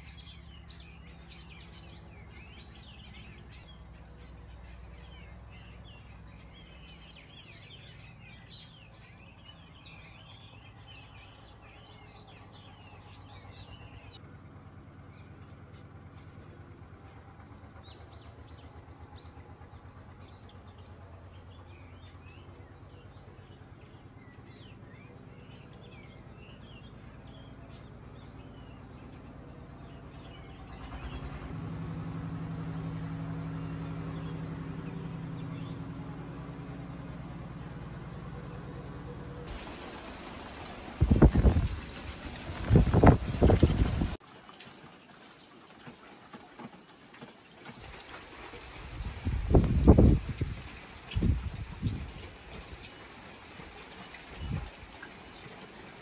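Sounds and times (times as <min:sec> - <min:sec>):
small birds chirping: 0:00.0 - 0:14.2, 0:20.2 - 0:31.5, 0:32.7 - 0:36.8, 0:39.4 - 0:44.2, 0:45.0 - 0:56.0
low steady rumble: 0:00.0 - 0:44.2
steady engine drone: 0:00.0 - 0:44.2.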